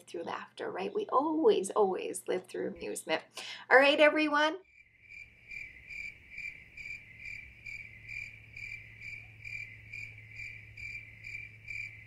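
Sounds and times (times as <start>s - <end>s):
cricket chirping: 4.7s - 12.0s.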